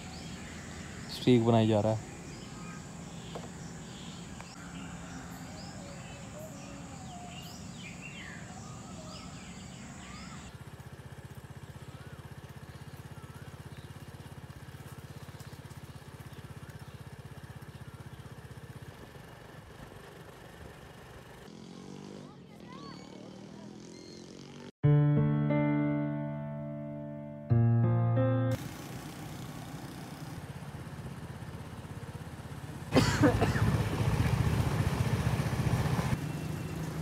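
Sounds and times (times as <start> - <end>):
birds chirping: 0.0 - 10.5, 22.6 - 24.6, 36.1 - 37.0
vehicle engine drone: 0.0 - 22.5, 23.2 - 37.0.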